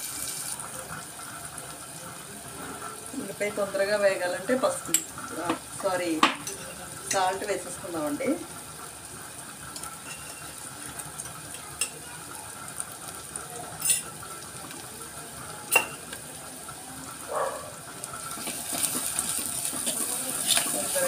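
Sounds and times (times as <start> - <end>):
onions sizzling in hot oil: 0.0 - 21.0
pot being stirred: 2.5 - 8.0, 9.7 - 12.0, 12.8 - 14.9, 15.6 - 16.3, 17.1 - 21.0
spoon clinking on jar and pot: 10.0 - 10.6, 13.8 - 14.1, 15.7 - 16.0.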